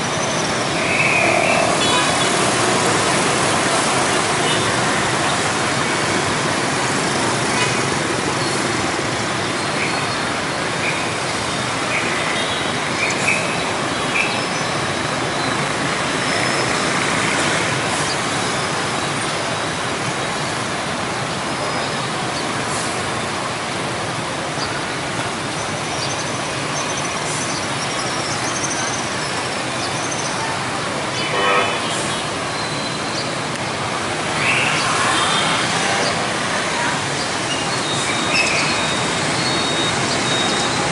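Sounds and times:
motorbike and car traffic: 0.0 - 40.9
vehicle horn beeps: 31.2 - 32.8.

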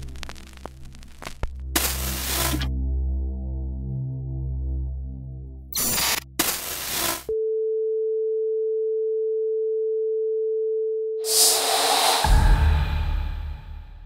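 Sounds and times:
loud noisy whoosh: 11.3 - 14.0.

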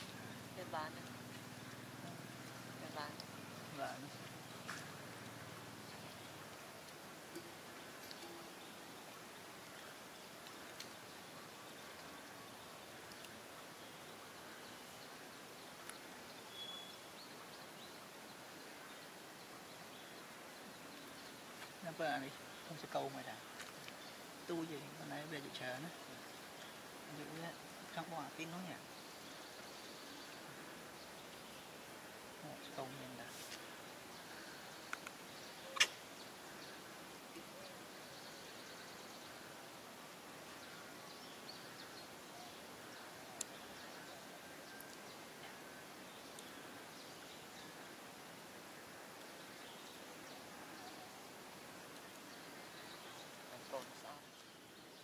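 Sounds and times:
faint bird chirps: 0.0 - 55.0
steady outdoor hiss: 0.0 - 55.0
faint high chirping: 15.8 - 18.0.

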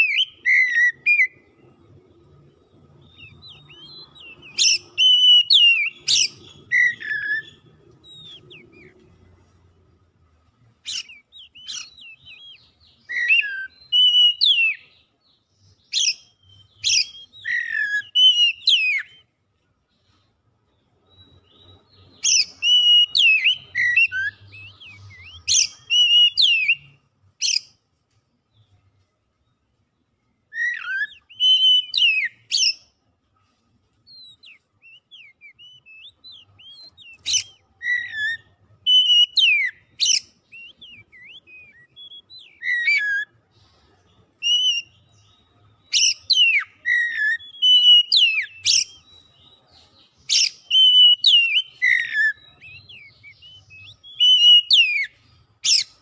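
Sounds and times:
bird singing whistled notes: 0.0 - 9.5, 10.8 - 19.4, 20.9 - 27.8, 28.5 - 33.0, 34.0 - 56.0.

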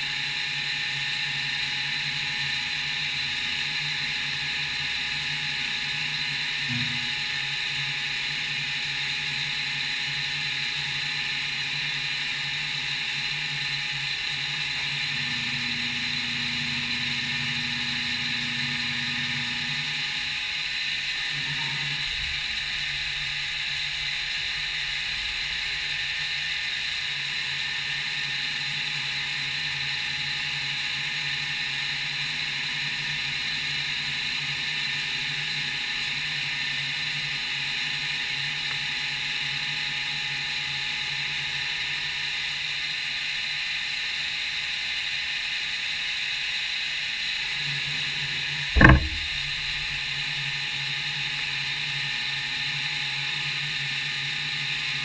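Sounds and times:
milling machine humming: 12.1 - 22.0
sharp knock: 48.8 - 50.0.

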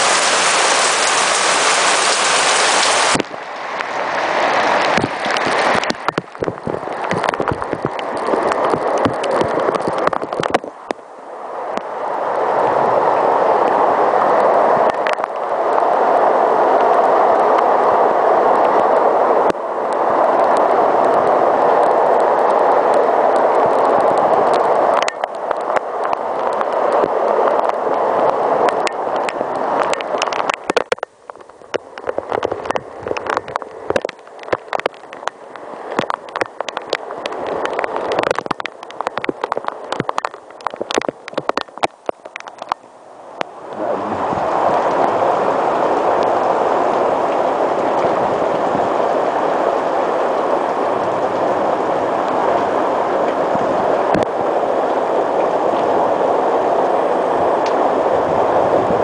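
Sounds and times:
raindrops tapping close by: 0.0 - 11.0, 14.8 - 15.5, 19.4 - 45.2, 53.3 - 54.4
heavy rain pouring: 0.0 - 59.0.

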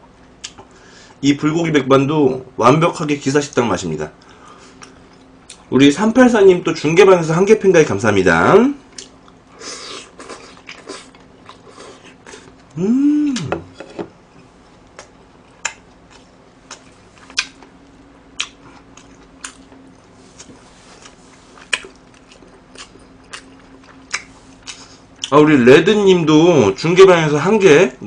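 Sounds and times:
person humming mmm: 11.7 - 13.8
chewing with wet mouth smacks: 15.0 - 17.8, 18.4 - 25.3.

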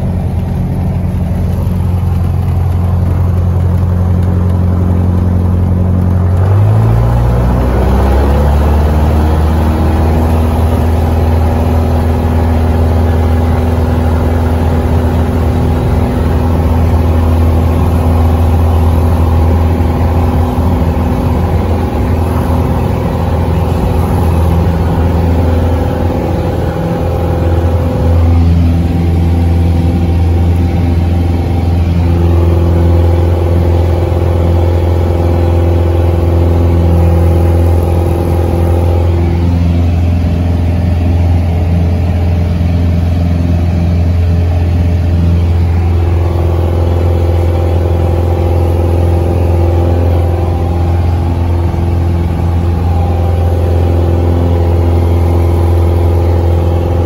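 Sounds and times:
aircraft engine and propeller: 0.0 - 57.0.

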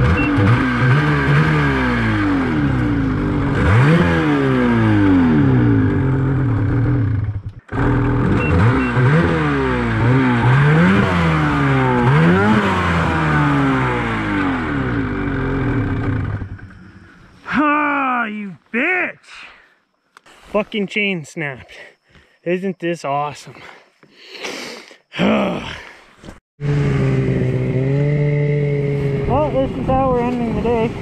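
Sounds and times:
snowmobile engine revving: 0.0 - 18.4, 26.6 - 30.8.

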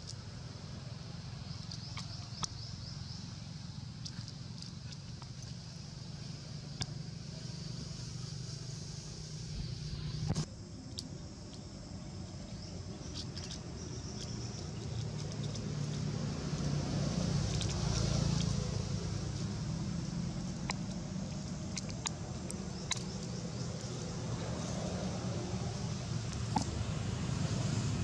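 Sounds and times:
faint sharp clicks: 20.6 - 23.4.

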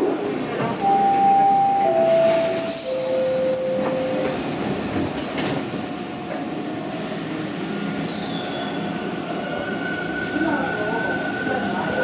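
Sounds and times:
subway train equipment running: 0.0 - 12.0.

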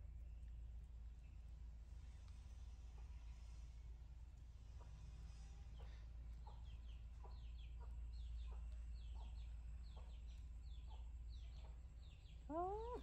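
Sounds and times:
high chick peeps: 4.8 - 13.0
rising bird call: 12.4 - 13.0.

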